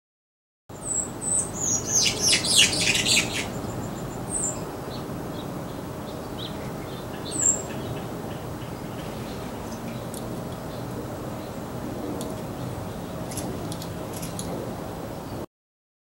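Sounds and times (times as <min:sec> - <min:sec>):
songbird chirping: 0:00.8 - 0:11.6
rapid bird chattering: 0:01.7 - 0:03.6.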